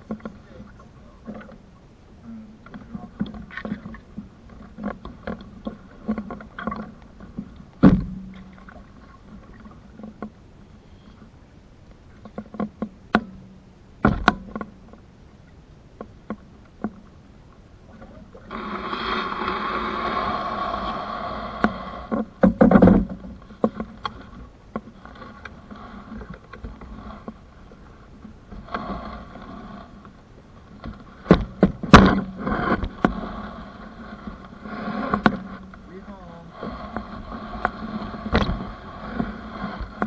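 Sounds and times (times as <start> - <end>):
paddle knocking against canoe: 2.7 - 10.4, 12.2 - 15.0, 21.6 - 29.0, 30.8 - 33.3
steady rushing noise: 18.4 - 40.0.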